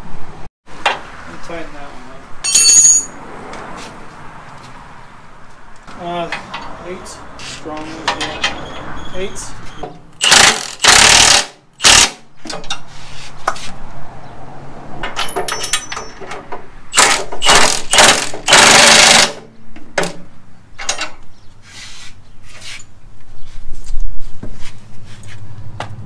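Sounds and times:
impact wrench hammering bolts: 10.2 - 12.8, 15.2 - 19.4.

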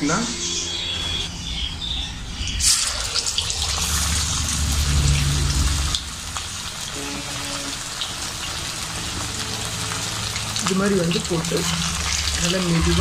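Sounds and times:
chicken sizzling in hot oil: 2.6 - 13.0.

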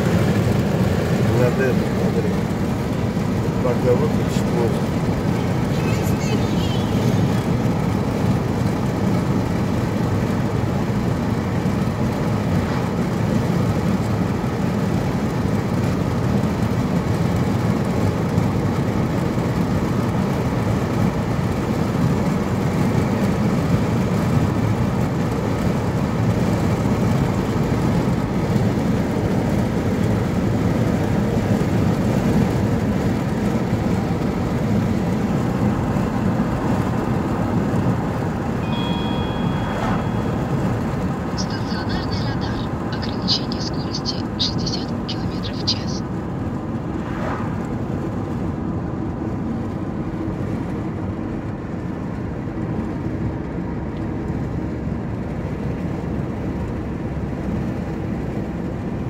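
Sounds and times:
car cabin road noise: 0.0 - 59.0.

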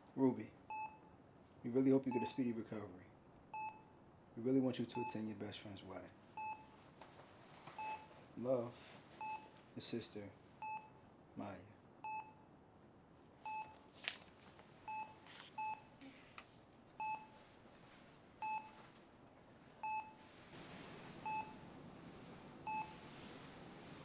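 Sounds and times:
heart monitor beeping: 0.7 - 1.0, 3.5 - 3.9, 6.4 - 6.8, 7.8 - 8.1, 9.2 - 9.6, 10.6 - 11.0, 12.0 - 12.4, 13.4 - 13.8, 14.8 - 15.9, 17.0 - 17.4, 18.4 - 18.8, 19.8 - 20.3, 21.0 - 24.0.

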